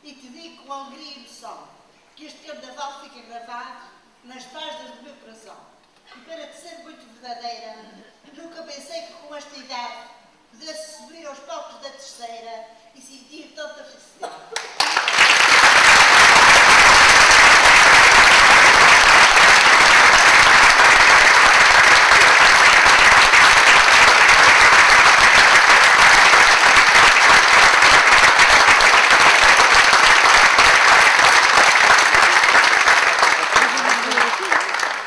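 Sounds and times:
large audience applauding: 0:14.6 - 0:35.0.

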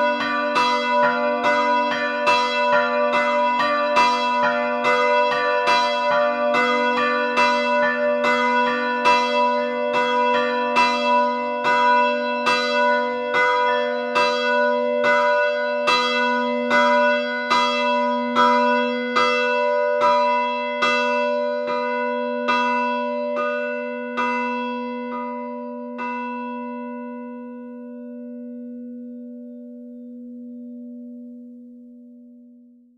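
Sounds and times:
church bells ringing: 0:00.0 - 0:32.7.

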